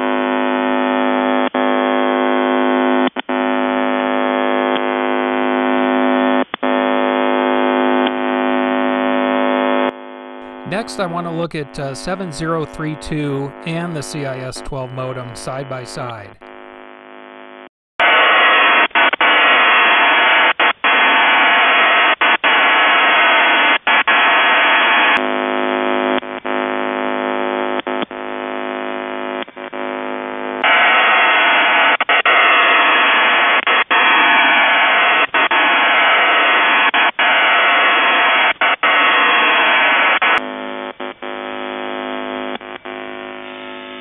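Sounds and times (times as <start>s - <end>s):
steady multi-tone buzz: 3.4s - 17.6s, 38.7s - 44.0s
hissing data modem noise: 10.4s - 16.5s.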